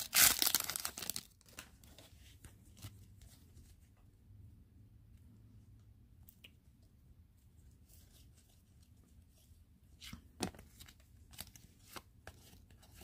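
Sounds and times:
wrapper tearing and crinkling: 0.0 - 1.6.

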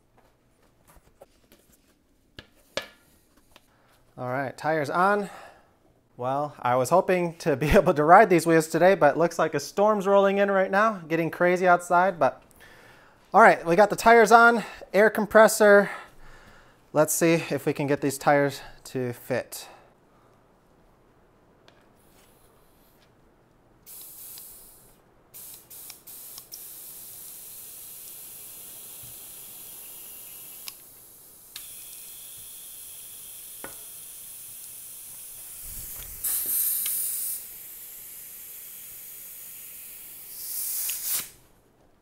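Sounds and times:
compressed air hissing into tire: 22.0 - 23.0, 23.9 - 41.4.

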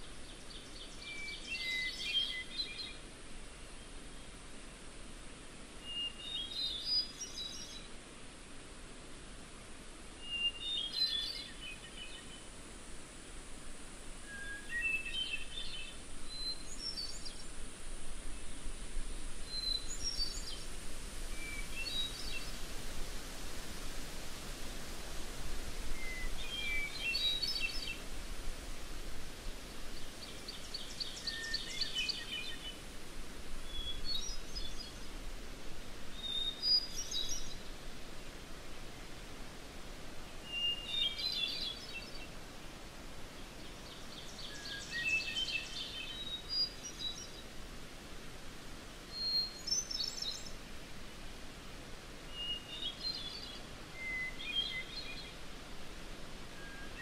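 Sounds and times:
songbird singing: 0.0 - 4.4, 5.7 - 8.0, 10.2 - 48.1, 48.8 - 57.0
faint background hiss: 0.0 - 57.0.

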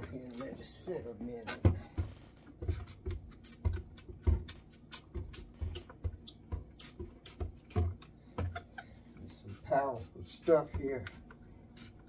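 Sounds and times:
spray bottle spritzing: 4.5 - 8.0, 9.5 - 12.0.

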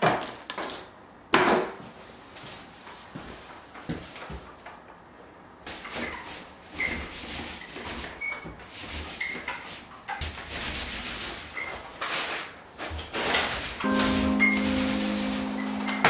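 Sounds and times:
paint roller swishing on wall: 5.7 - 16.0.

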